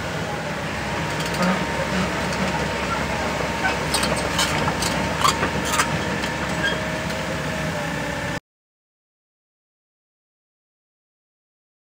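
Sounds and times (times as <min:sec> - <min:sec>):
excavator diesel engine running: 0:00.0 - 0:08.4.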